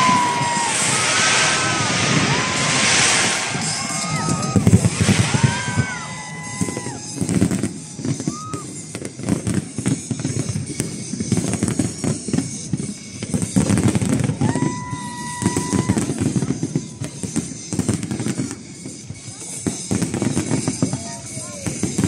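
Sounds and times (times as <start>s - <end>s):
held high note: 0.0s - 7.4s
fireworks cracking and banging: 0.0s - 22.0s
music playing: 0.0s - 22.0s.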